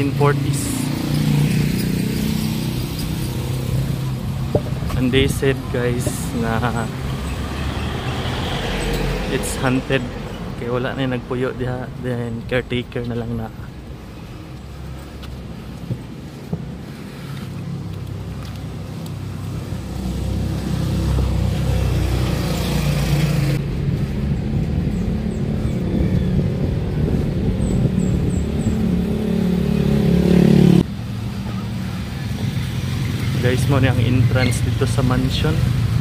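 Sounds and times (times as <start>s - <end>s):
vehicle engine approaching: 0.0s - 12.6s.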